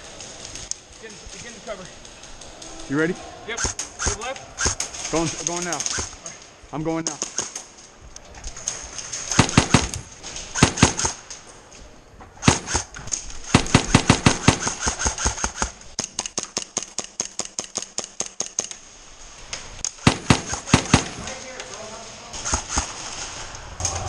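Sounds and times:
airsoft guns firing: 3.6s - 6.3s, 7.0s - 7.7s, 8.6s - 11.3s, 12.4s - 18.8s, 19.9s - 21.8s, 22.4s - 23.0s.

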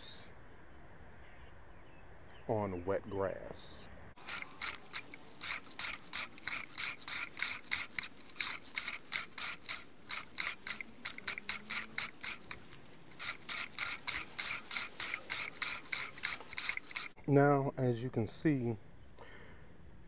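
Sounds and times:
reel mower snipping grass: 4.2s - 17.2s.

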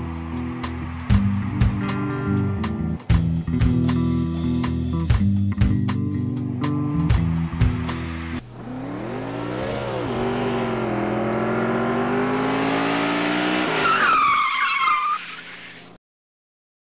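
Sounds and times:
car engine revving: 0.0s - 3.1s, 7.4s - 14.0s
guitar music: 0.0s - 11.5s
tire screech: 8.5s - 16.0s.

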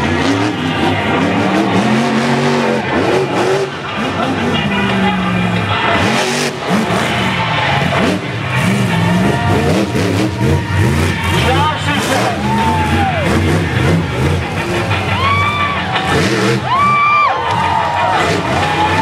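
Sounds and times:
monster truck engine revving: 0.0s - 19.0s.

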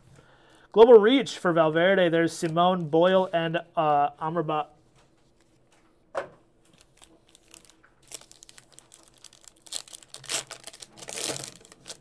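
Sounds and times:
foil wrapper crinkling and tearing: 6.7s - 12.0s.

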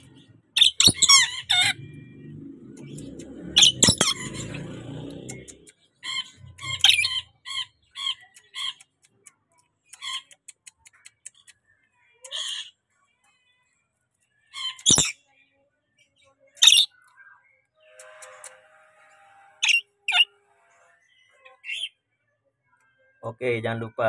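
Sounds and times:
lorikeet chirping: 0.0s - 4.6s, 5.3s - 8.9s, 14.6s - 15.2s, 16.6s - 17.0s, 19.6s - 20.3s
lorikeet harsh screeches: 0.6s - 1.8s, 3.6s - 4.6s, 6.1s - 8.8s, 14.6s - 15.1s, 16.6s - 16.9s, 17.8s - 20.4s.

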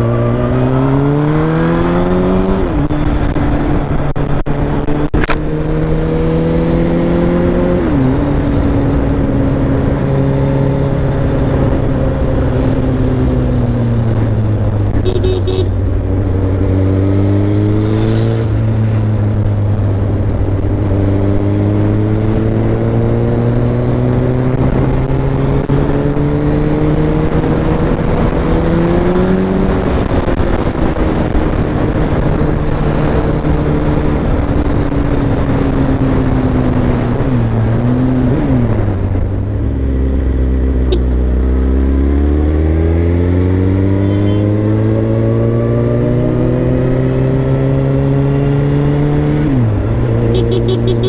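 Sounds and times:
motorcycle engine revving: 0.0s - 51.0s
wind rushing over microphone: 15.8s - 50.4s.

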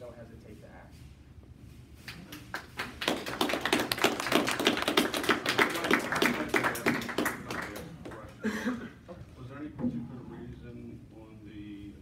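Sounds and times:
people applauding: 2.1s - 8.4s.

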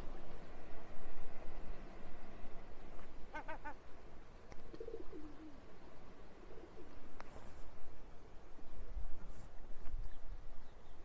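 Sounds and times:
seagull calling: 3.3s - 3.8s.

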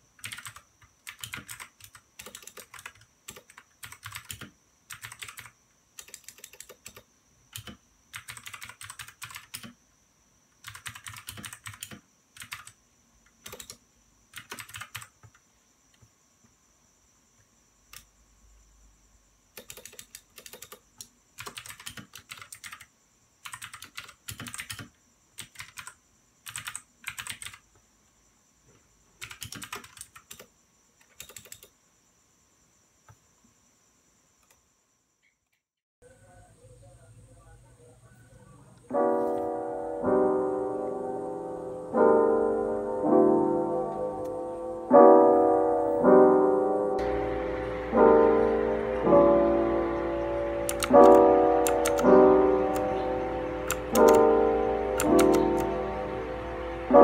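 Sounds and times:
keyboard key clicks: 50.6s - 52.1s, 53.6s - 54.3s, 55.0s - 55.7s
mouse click: 50.6s - 52.1s, 53.6s - 54.2s.

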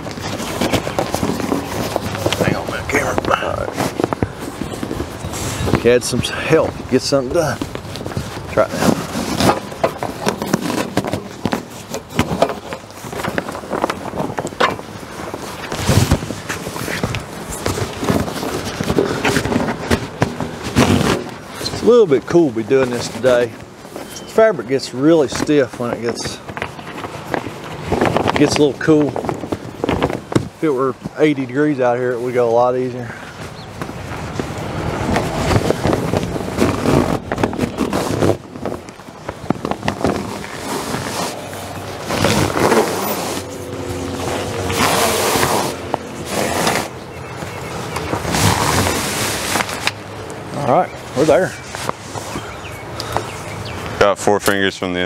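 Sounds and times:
awning fabric rustling and crinkling: 0.0s - 53.8s
wind buffeting microphone: 32.8s - 49.4s.

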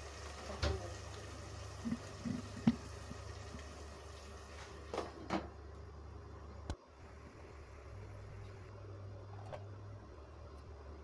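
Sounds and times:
sauce bubbling in a pot: 0.0s - 6.4s.

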